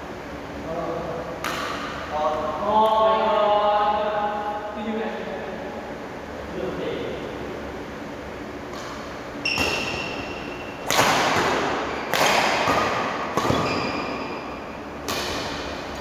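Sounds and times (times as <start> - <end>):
rackets striking shuttlecock: 1.4 - 2.0, 8.7 - 15.9.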